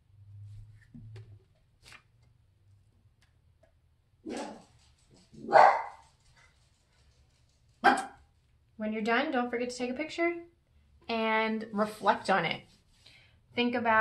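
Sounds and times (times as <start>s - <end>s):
dog barking: 4.3s - 4.6s, 5.4s - 6.0s, 7.8s - 8.2s.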